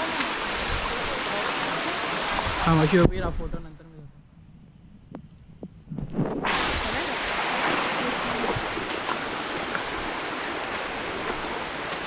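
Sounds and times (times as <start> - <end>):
waterfall rushing: 0.0 - 3.1, 6.5 - 12.0.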